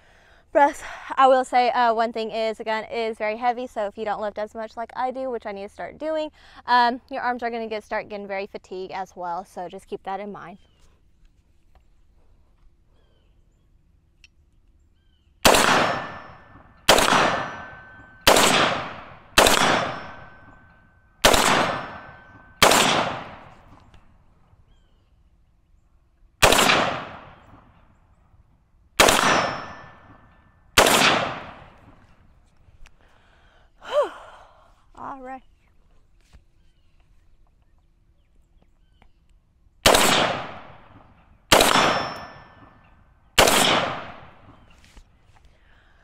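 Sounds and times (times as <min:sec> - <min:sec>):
rifle shots: 0:15.4 - 0:23.7, 0:26.4 - 0:27.7, 0:29.0 - 0:32.0, 0:39.8 - 0:42.7, 0:43.4 - 0:44.7.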